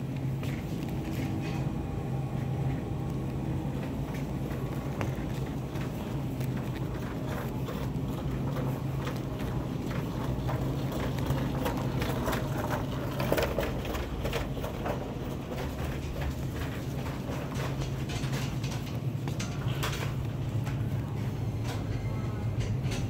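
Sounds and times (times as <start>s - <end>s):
refrigerated display cases humming: 0.0s - 23.0s.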